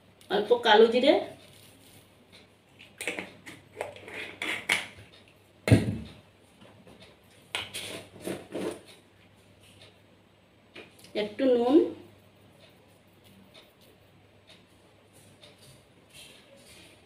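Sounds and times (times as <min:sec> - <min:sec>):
jar lids scraping and clicking: 0:02.8 - 0:04.9.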